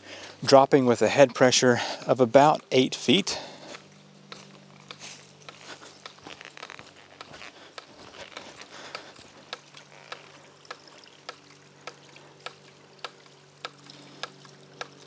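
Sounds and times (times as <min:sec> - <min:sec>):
trickling water: 0:00.0 - 0:15.0
pump valve clacking: 0:07.2 - 0:15.0.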